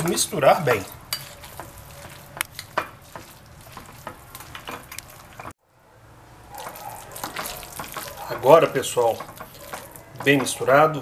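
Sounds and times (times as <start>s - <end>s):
wet crackling mixing: 0.0s - 5.6s, 6.5s - 11.0s.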